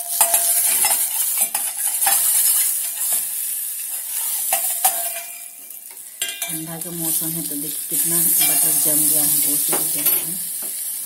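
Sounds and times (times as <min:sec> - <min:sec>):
metal spoon scraping a pan: 0:00.0 - 0:06.6, 0:08.2 - 0:10.3
butter sizzling in a saucepan: 0:00.0 - 0:11.0.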